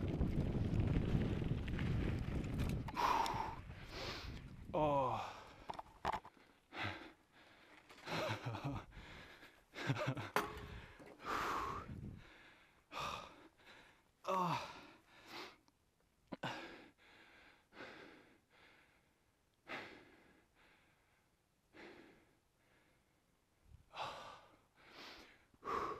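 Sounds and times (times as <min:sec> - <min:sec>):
person breathing hard: 0:02.9 - 0:04.4, 0:06.3 - 0:15.6, 0:16.4 - 0:23.2, 0:23.9 - 0:25.9
voiced sighs: 0:03.0 - 0:05.6, 0:14.2 - 0:15.6.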